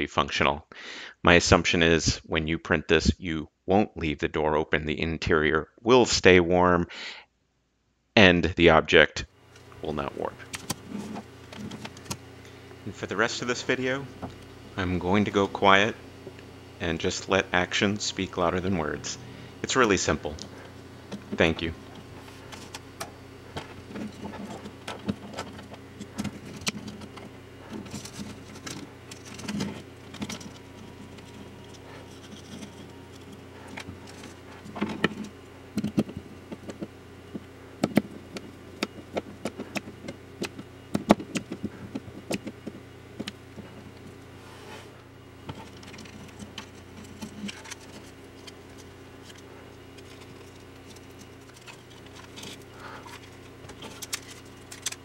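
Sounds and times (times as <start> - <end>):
faint low hum: 8.2 - 55.0
plastic parts clicking and tapping: 37.8 - 43.7, 50.0 - 55.0.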